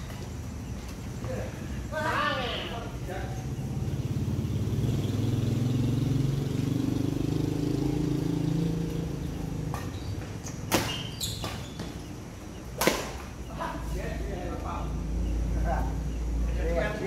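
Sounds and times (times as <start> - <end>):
vehicle engine passing: 2.7 - 10.5
badminton racket hitting shuttlecock: 12.8 - 13.3.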